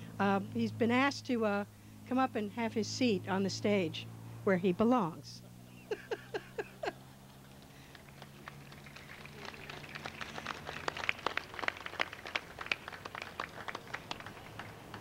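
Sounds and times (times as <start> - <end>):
audience applauding: 7.4 - 15.0.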